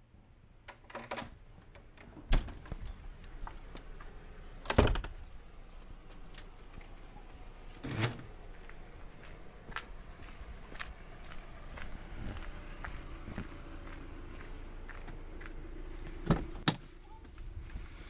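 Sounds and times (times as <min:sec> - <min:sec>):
door latch clicks and knocks: 0:00.7 - 0:02.7
door thumping shut: 0:02.2 - 0:02.7, 0:04.6 - 0:05.2.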